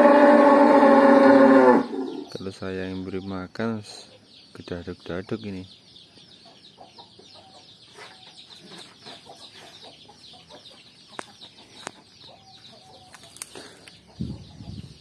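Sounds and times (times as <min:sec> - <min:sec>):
chickens clucking: 0:06.0 - 0:15.0.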